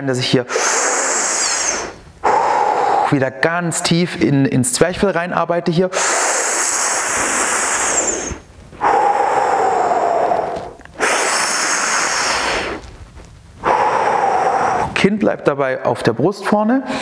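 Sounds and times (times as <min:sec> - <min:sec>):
man breathing deeply: 0:00.5 - 0:03.2, 0:05.9 - 0:12.9, 0:13.6 - 0:15.0.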